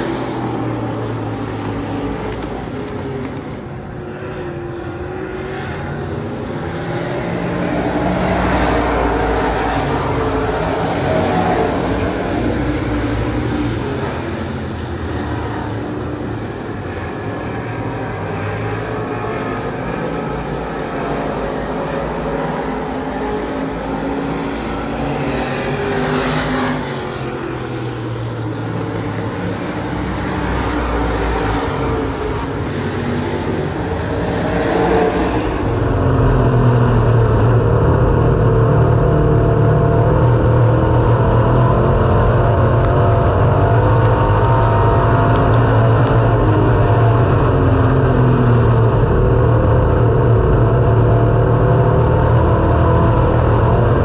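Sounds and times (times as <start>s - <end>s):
race car engine from cockpit: 0.0s - 54.0s
race car engines passing: 0.0s - 54.0s.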